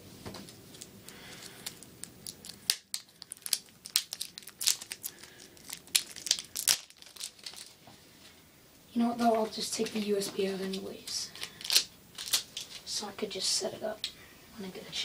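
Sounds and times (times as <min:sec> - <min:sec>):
plastic packaging crinkling: 0:00.6 - 0:07.8, 0:09.2 - 0:13.0.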